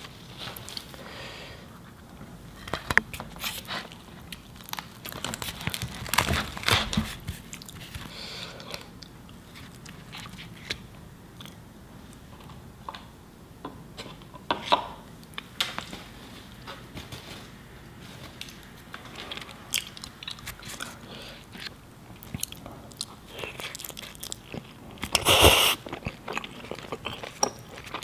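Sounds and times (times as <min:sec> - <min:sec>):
chewing and crunching food: 0:02.6 - 0:13.0, 0:18.3 - 0:28.0.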